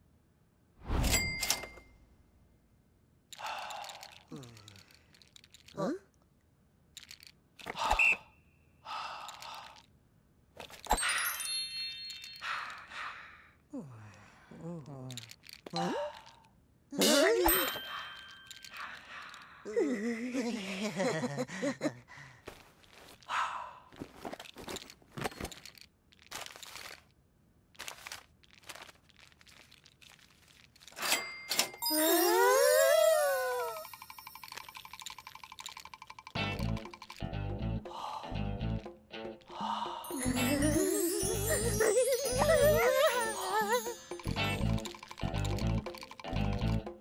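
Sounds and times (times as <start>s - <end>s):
sparkling chime: 10.9s - 12.6s, 17.4s - 19.0s, 31.0s - 34.9s, 40.0s - 44.9s
paper crinkling: 24.0s - 31.1s
steady high tone: 31.8s - 35.0s, 40.0s - 44.9s.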